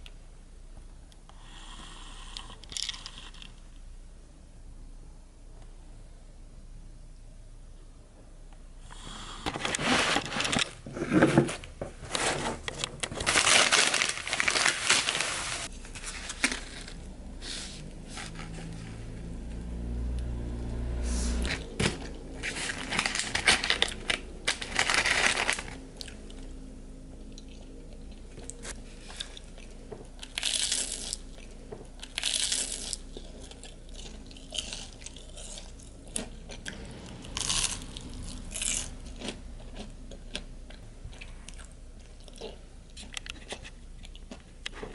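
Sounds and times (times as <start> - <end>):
wrapping crinkling and rustling: 9.6 - 17.1, 22.4 - 25.8
low hum: 14.0 - 44.7.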